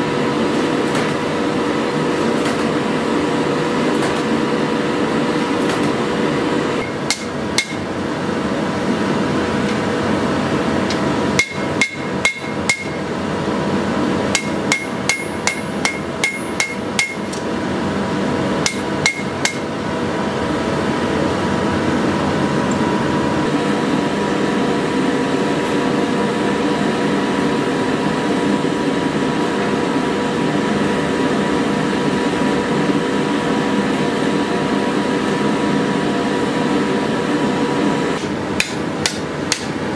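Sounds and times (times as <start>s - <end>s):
steady droning background: 6.0s - 35.3s
hammer striking blade on anvil: 6.8s - 7.9s, 10.9s - 13.1s, 14.3s - 17.4s, 18.6s - 19.7s, 38.2s - 39.8s.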